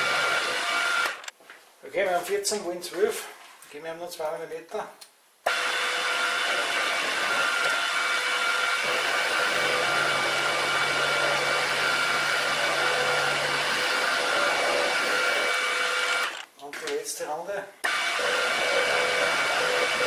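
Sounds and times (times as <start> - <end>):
milling machine cutting metal: 0.0 - 1.3, 5.5 - 16.5, 17.8 - 20.0.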